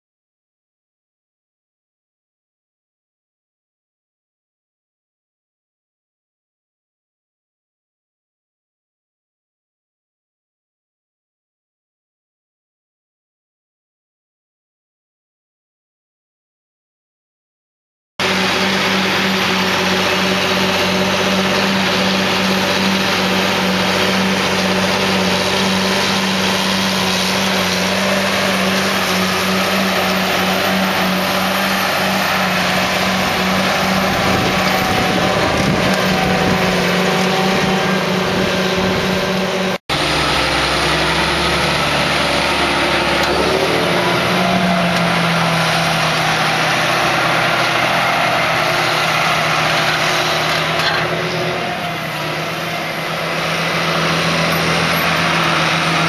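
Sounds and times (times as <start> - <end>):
tractor diesel engine running: 18.2 - 56.0.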